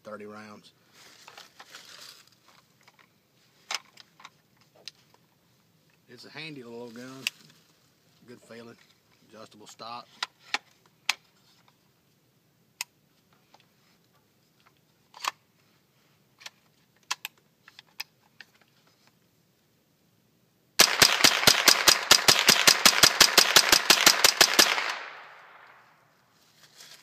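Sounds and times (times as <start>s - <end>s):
rifle firing rapidly: 20.8s - 25.8s.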